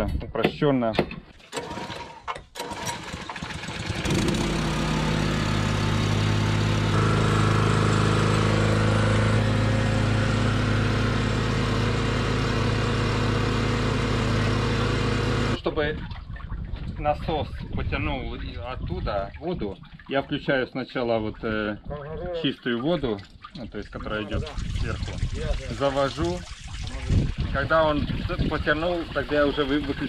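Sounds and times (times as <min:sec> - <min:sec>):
small petrol engine running: 0:01.5 - 0:15.6.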